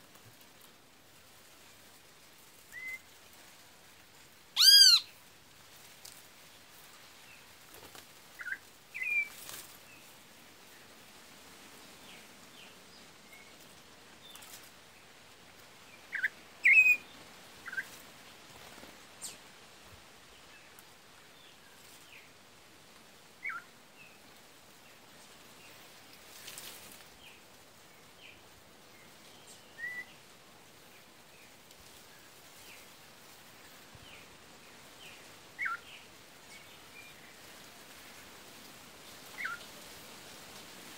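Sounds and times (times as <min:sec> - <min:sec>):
bird call chips: 0:04.6 - 0:05.0.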